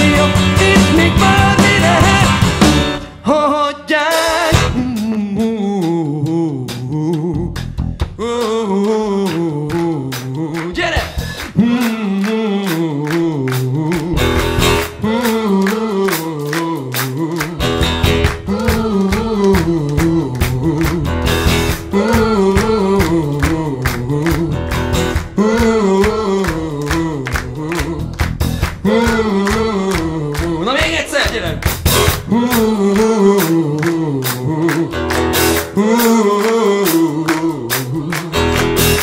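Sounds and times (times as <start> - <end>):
wordless singing: 0.0 - 2.6, 8.2 - 31.6, 32.2 - 39.0
live rock band playing: 0.0 - 5.1, 13.5 - 39.0.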